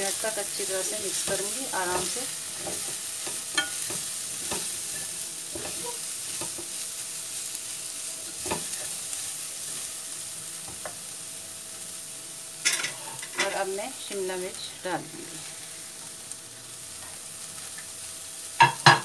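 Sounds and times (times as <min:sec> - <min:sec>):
vegetables sizzling in a pan: 0:00.0 - 0:19.0
spatula knocking against pan: 0:18.6 - 0:19.0.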